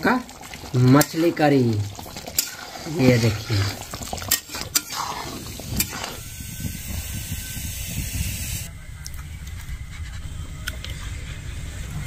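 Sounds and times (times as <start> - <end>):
curry hissing in a pan: 0.0 - 8.7.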